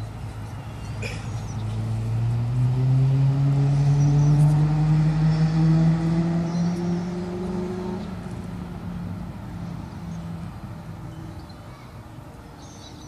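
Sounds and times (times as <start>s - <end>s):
motor engine drone: 1.5s - 11.2s.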